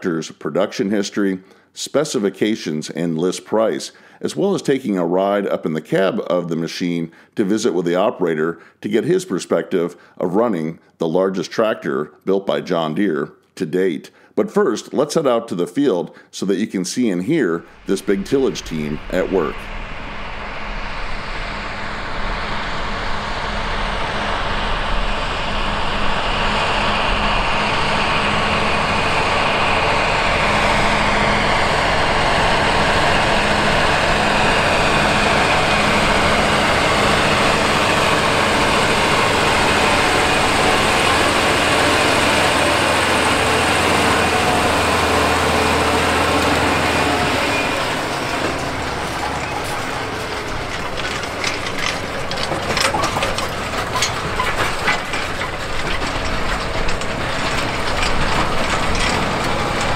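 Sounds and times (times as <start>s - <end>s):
tractor diesel engine: 17.3s - 59.9s.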